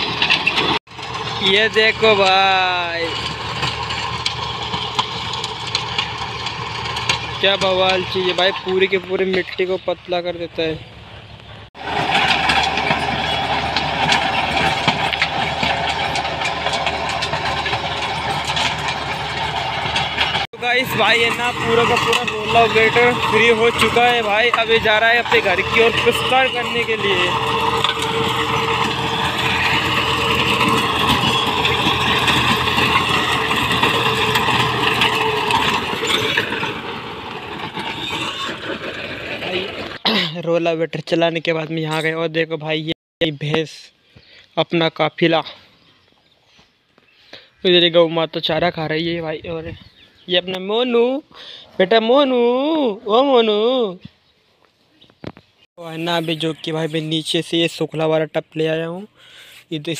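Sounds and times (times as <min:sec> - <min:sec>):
rotary tiller churning soil: 0:00.0 - 0:09.7, 0:11.8 - 0:40.0, 0:55.8 - 0:57.8
diesel tractor engine running: 0:00.0 - 0:40.0.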